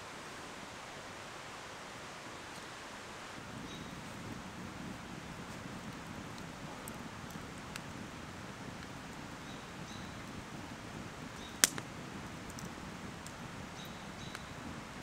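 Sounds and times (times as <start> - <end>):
campfire flame hissing: 0.0 - 15.0
burning wood popping: 4.0 - 15.0
wood crackling: 4.0 - 15.0.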